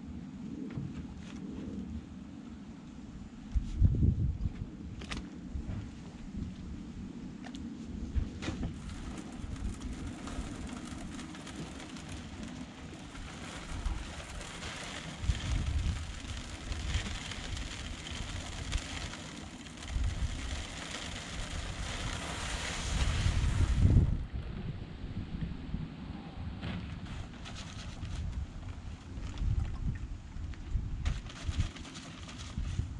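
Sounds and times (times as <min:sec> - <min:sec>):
wind buffeting microphone: 0:03.3 - 0:32.9
dry concrete mix pouring hiss: 0:08.8 - 0:24.1.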